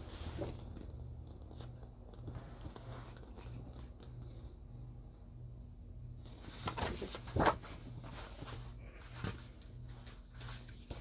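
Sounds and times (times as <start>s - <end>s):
paper rustle: 6.3s - 11.0s.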